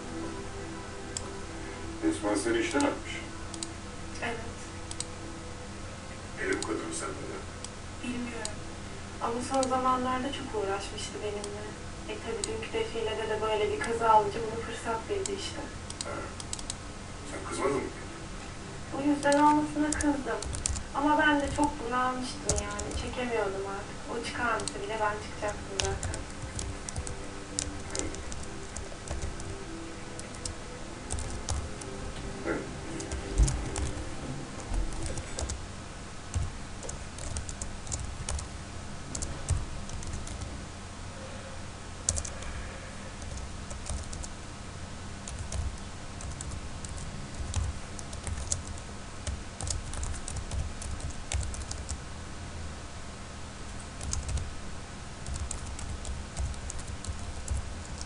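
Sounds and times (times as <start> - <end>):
computer keyboard typing: 3.5 - 3.8, 4.9 - 5.1, 9.4 - 9.8, 12.3 - 12.7, 15.2 - 16.8, 19.2 - 21.8, 22.4 - 23.2, 24.5 - 31.9, 32.9 - 35.6, 36.3 - 38.5, 39.1 - 40.5, 42.1 - 42.5, 43.2 - 44.4, 45.2 - 52.0, 54.0 - 54.5, 55.2 - 58.0.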